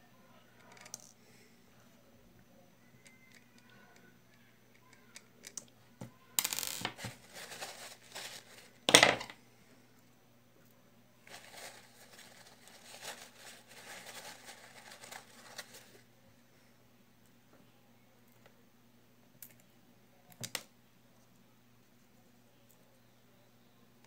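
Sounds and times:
rustling: 6.6 - 8.8, 11.2 - 16.1.

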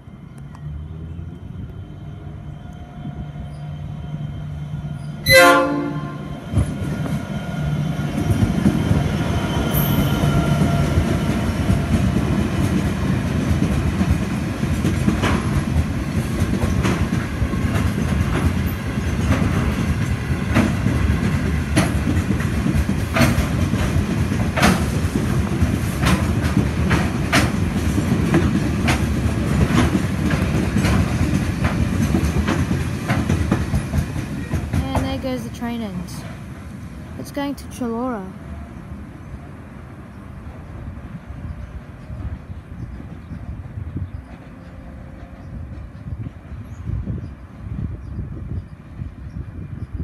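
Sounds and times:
diesel locomotive engine: 0.0 - 50.0
freight wagons rumbling: 5.6 - 38.8
wheels clacking over rail joints: 10.4 - 36.9.

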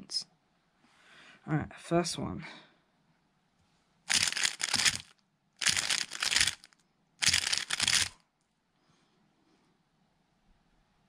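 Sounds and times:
puzzle cube turning clicks: 4.1 - 8.2.

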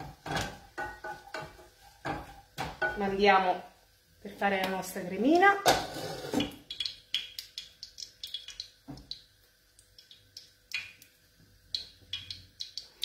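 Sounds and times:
wooden spoon stirring saucepan: 0.0 - 3.2.

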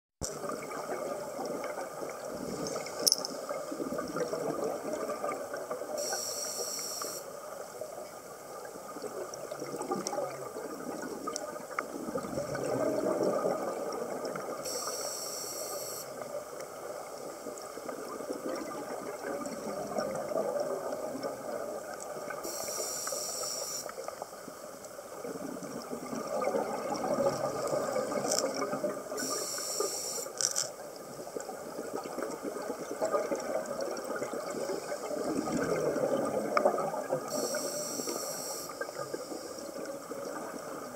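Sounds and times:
watery rumble: 0.2 - 6.0, 7.4 - 14.6, 24.0 - 29.4, 30.3 - 38.1
regulator inhalation hiss: 6.0 - 7.3, 14.6 - 16.1, 22.5 - 23.9, 29.2 - 30.4, 37.3 - 39.6.

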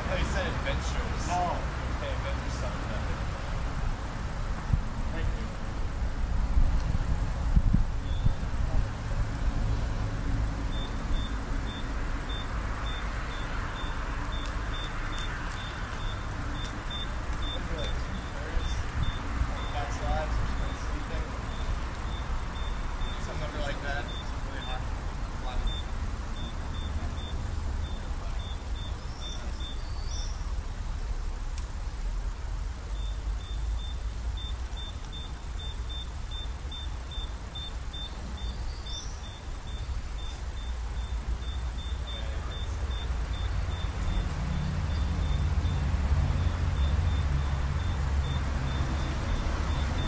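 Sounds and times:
steady low rumble: 0.0 - 48.6
short high-pitched electronic beeps: 25.6 - 29.0.

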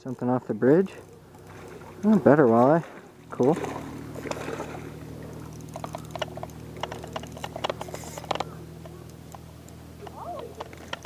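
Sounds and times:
steady low hum: 0.0 - 11.0
fishing reel clicks and taps: 5.2 - 11.0.

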